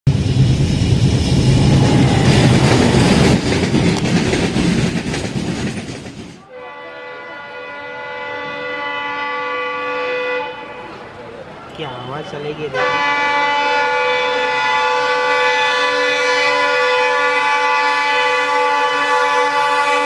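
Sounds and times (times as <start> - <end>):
train rumbling: 0.0 - 9.5, 10.5 - 20.0
locomotive horn: 6.4 - 11.2, 12.0 - 20.0.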